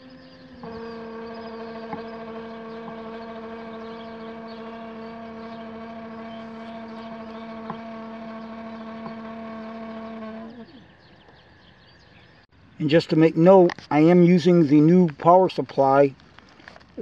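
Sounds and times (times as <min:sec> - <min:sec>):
motor whine: 0:00.0 - 0:11.0.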